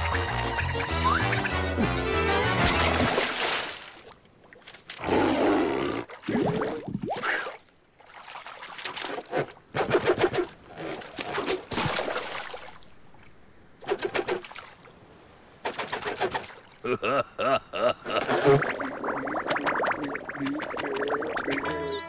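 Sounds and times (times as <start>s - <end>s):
cartoon vocal noises: 16.9s - 22.0s
cartoon swimming splashes: 18.1s - 22.0s
cartoon water splash: 18.2s - 22.0s.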